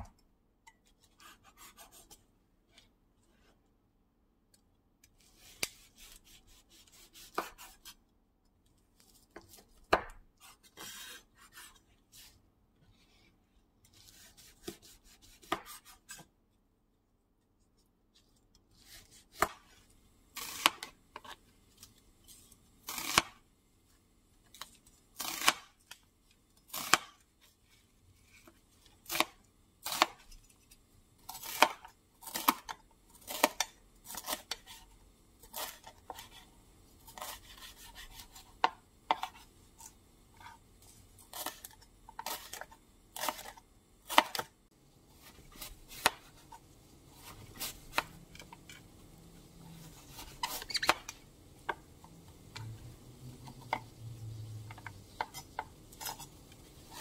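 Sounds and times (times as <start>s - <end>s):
knife slicing on plastic board: 5.2s - 8.0s.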